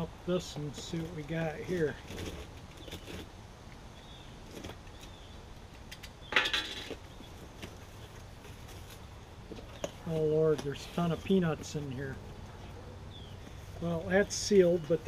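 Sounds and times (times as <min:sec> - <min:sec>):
cardboard flaps scraping and rustling: 0:00.8 - 0:03.3
cardboard ripping: 0:02.0 - 0:03.3.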